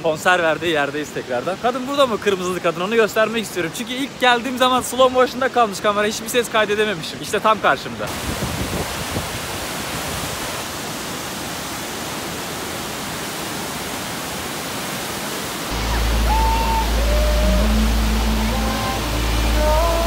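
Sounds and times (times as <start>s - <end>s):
waterfall roaring: 0.0s - 20.0s
music with deep drone and melody: 15.7s - 20.0s.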